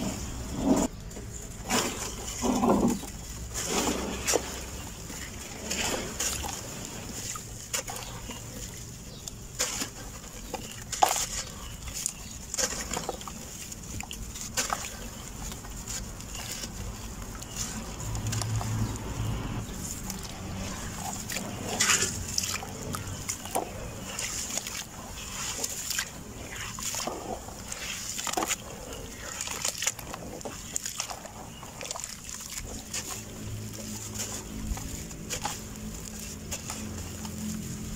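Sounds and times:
soil crumbling and crackling: 0:00.0 - 0:37.9
water sloshing and splashing: 0:00.0 - 0:37.9.

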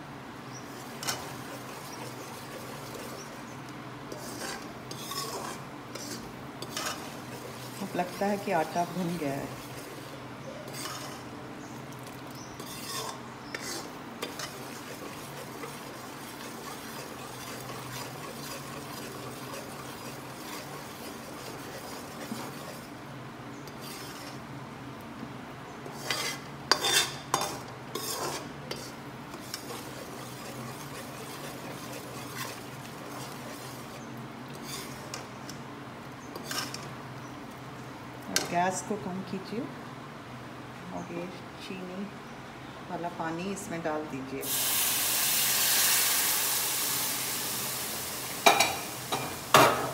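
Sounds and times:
soft sizzle: 0:00.0 - 0:39.8, 0:43.0 - 0:49.9
metal spoon scraping pan: 0:00.8 - 0:03.4, 0:04.1 - 0:10.1, 0:10.7 - 0:11.3, 0:12.6 - 0:22.9, 0:23.7 - 0:24.4, 0:25.9 - 0:35.6, 0:36.3 - 0:36.9, 0:48.4 - 0:49.9.

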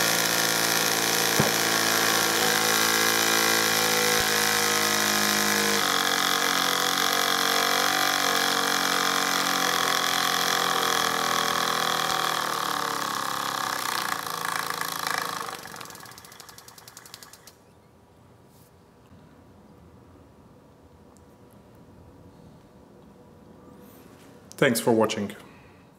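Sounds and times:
steam engine hum: 0:00.0 - 0:17.6.

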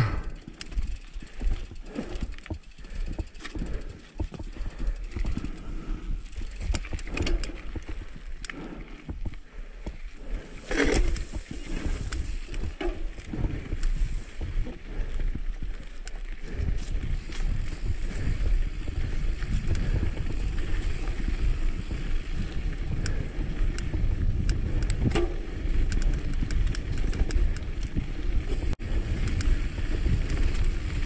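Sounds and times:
low rumble: 0:00.0 - 0:00.5
bike rattling: 0:00.0 - 0:31.0.

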